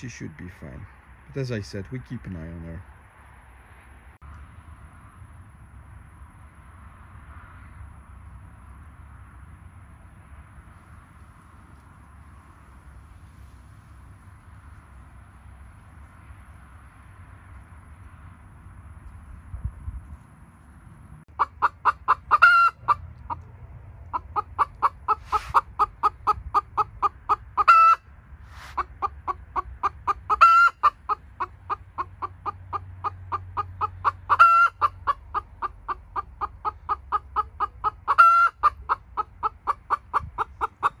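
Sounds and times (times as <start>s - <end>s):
chicken clucking: 21.3s - 28.0s, 28.6s - 41.0s
chicken squawking: 21.3s - 41.0s.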